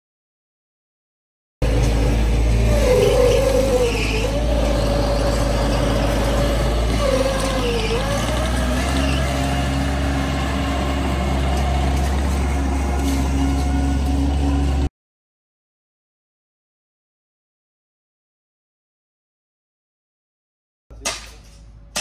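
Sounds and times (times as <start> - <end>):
loader diesel engine and hydraulics: 1.6 - 14.9.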